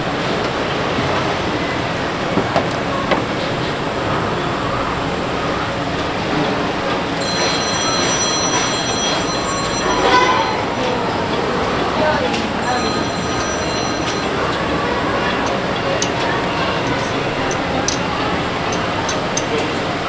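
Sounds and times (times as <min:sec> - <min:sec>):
busy street stall background noise: 0:00.0 - 0:20.0.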